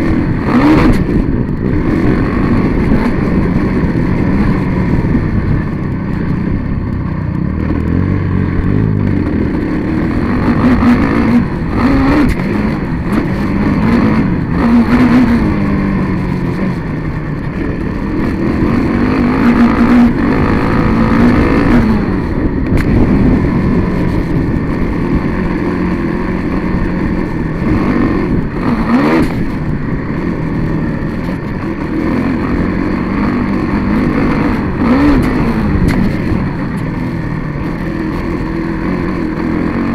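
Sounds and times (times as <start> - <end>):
racing engine revving: 0.0 - 39.9
wind and track noise: 0.0 - 39.9.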